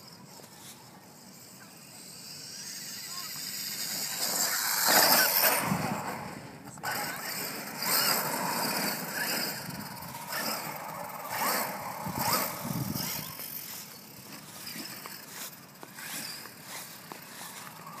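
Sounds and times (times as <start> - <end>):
electric motor whining: 0.0 - 18.0
tyre and grit noise: 0.0 - 18.0.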